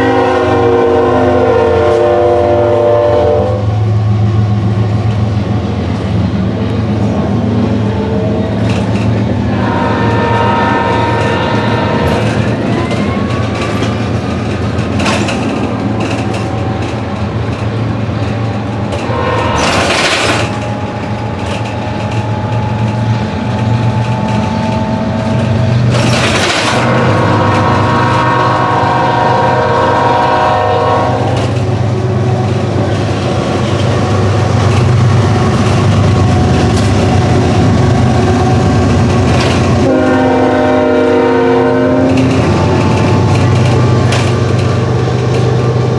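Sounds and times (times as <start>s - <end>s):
train air horn: 0.0s - 3.9s, 9.4s - 13.7s, 18.9s - 31.6s, 39.4s - 43.9s
bus engine rumble: 1.9s - 45.9s.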